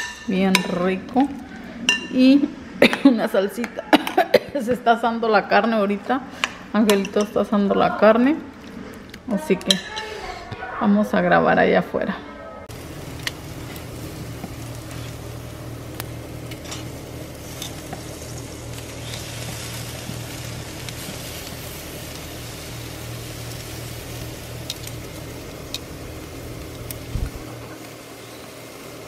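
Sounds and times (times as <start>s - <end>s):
meat sizzling on grill: 12.7s - 29.0s.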